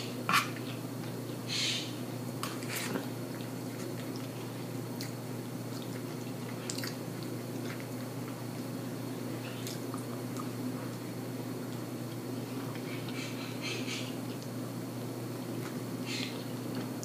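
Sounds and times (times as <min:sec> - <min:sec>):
wet chewing and lip smacks: 0:02.4 - 0:08.7, 0:09.5 - 0:11.0.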